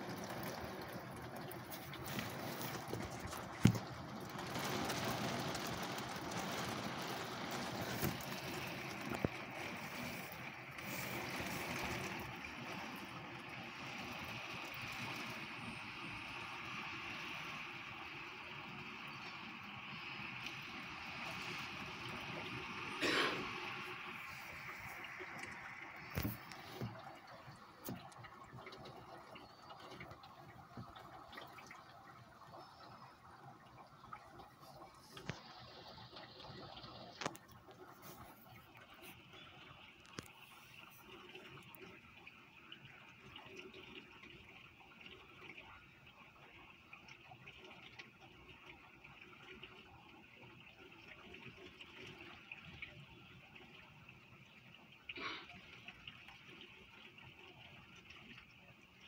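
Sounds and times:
heavy rain in gusty wind: 0.0s - 27.0s
raindrops ticking: 0.0s - 59.0s.

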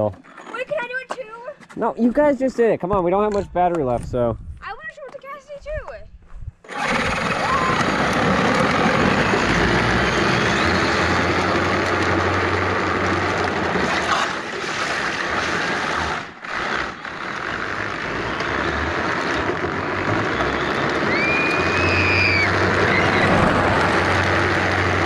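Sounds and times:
wind buffeting microphone: 3.3s - 4.9s
electric motor whine: 6.7s - 14.1s, 15.3s - 25.0s.

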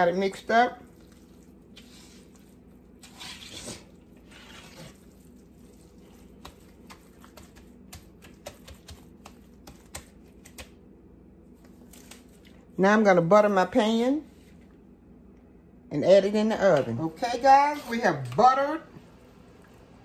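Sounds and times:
hands squelching wet mixture: 0.0s - 10.9s, 11.5s - 12.8s.

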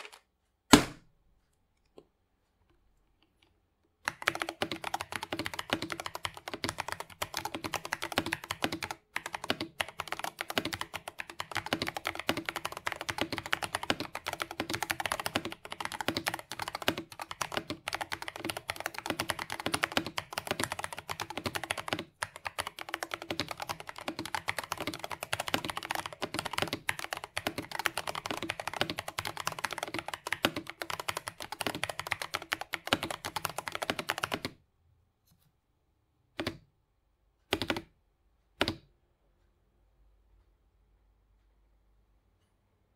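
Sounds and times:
mechanical keyboard typing: 4.0s - 34.6s, 36.4s - 36.6s, 37.4s - 38.0s, 38.6s - 38.9s.

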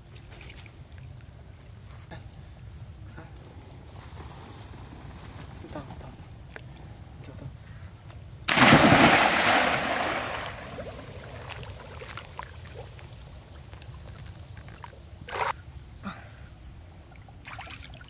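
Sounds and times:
person splashing into water: 8.5s - 12.8s
water churning: 8.5s - 13.1s.

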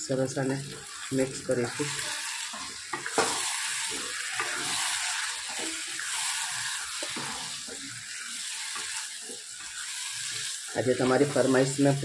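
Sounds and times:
stew sizzling and bubbling in oil: 0.0s - 12.0s
spoon scraping and knocking pan: 1.8s - 10.4s.

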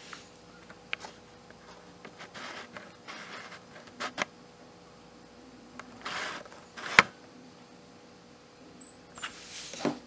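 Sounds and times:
phone handling rustles: 0.6s - 4.3s.

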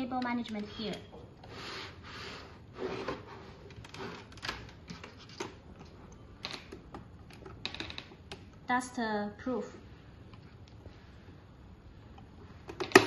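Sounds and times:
plastic parts rubbing and sliding: 0.6s - 5.9s.

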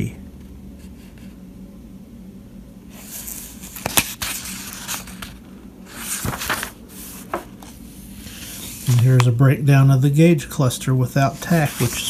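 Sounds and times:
paper pages turning: 2.9s - 9.4s, 11.3s - 12.0s.

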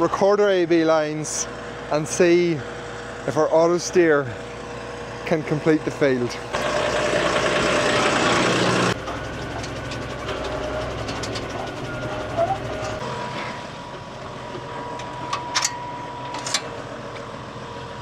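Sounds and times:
tractor engine running: 0.0s - 18.0s.

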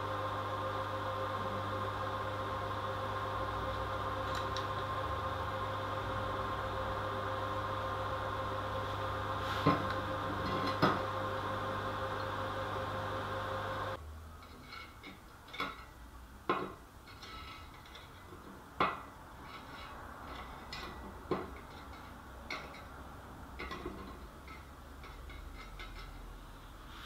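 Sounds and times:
steel rods clinking on metal: 23.6s - 26.3s.

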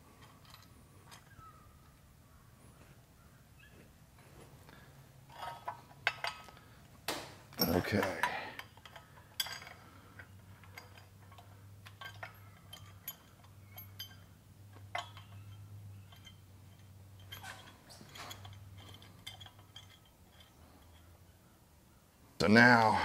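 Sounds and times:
low steady hum: 0.0s - 23.0s
metal clicks and clinks: 0.2s - 1.4s, 5.3s - 6.7s, 7.5s - 21.2s.

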